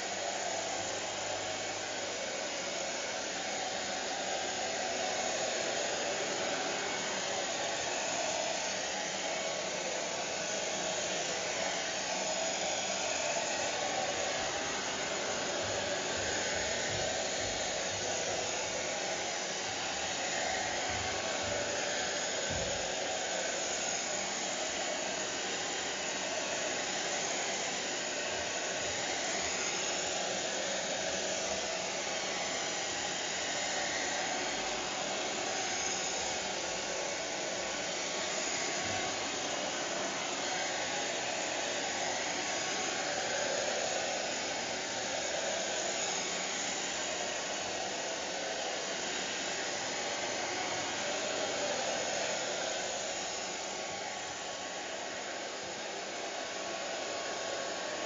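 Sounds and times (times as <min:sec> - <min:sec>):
hair dryer running: 0:00.0 - 0:58.0.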